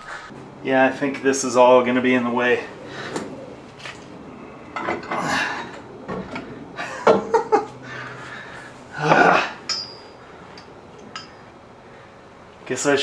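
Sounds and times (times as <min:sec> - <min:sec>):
man breathing effortfully: 0:00.0 - 0:00.4, 0:02.8 - 0:03.6, 0:07.8 - 0:10.7.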